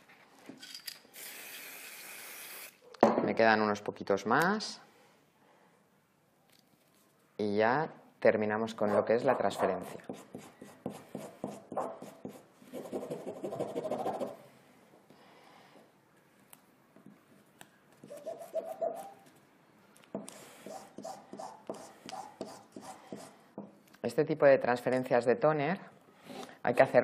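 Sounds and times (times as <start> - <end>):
scratchy rubbing strokes: 8.9 - 14.4, 18.0 - 19.2, 20.3 - 23.4.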